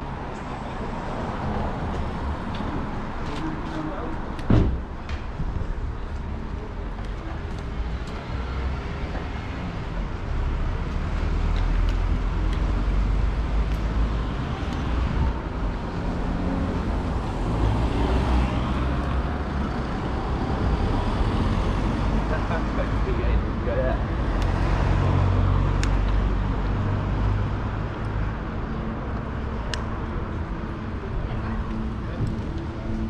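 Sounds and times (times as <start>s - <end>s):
street traffic rumble: 0.0s - 33.0s.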